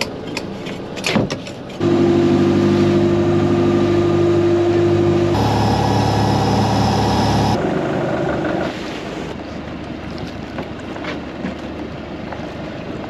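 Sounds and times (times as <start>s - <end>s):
water wash: 1.8s - 7.7s
boat engine humming: 1.8s - 9.8s.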